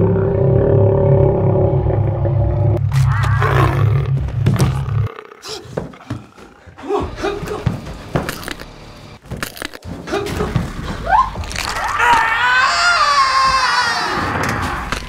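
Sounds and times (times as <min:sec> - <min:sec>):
person screaming: 0:02.9 - 0:03.8, 0:11.0 - 0:14.9.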